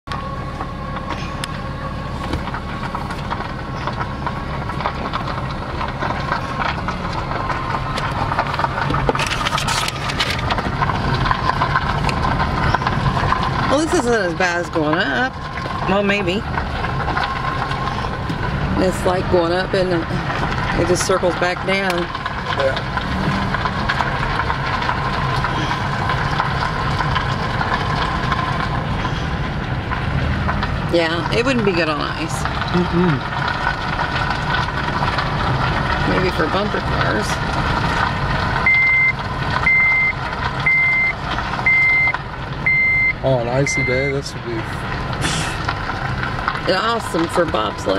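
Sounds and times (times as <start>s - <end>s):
car engine and road hum: 0.0s - 47.9s.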